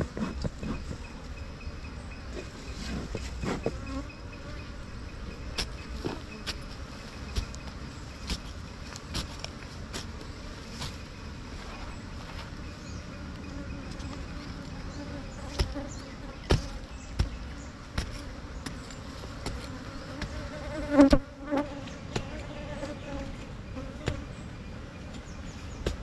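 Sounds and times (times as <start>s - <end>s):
bees buzzing: 0.0s - 26.0s.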